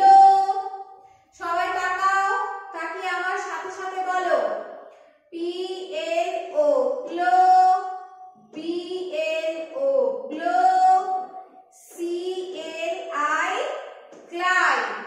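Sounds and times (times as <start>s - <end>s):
person chanting syllables: 5.4s - 13.7s.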